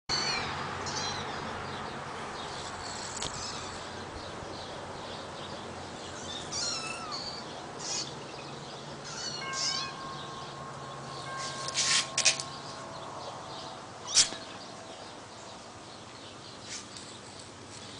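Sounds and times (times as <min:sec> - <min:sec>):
kittens mewing: 0:06.5 - 0:08.1, 0:09.0 - 0:10.1.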